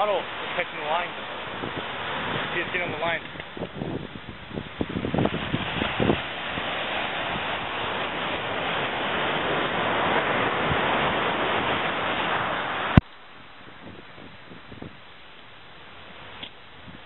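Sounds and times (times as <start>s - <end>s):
breaking surf rushing: 0.0s - 13.0s
wind buffeting microphone: 0.0s - 17.0s.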